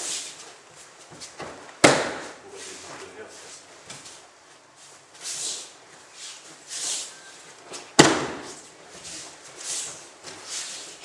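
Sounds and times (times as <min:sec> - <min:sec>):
body slapping onto mat: 0:01.4 - 0:02.4, 0:08.0 - 0:08.6.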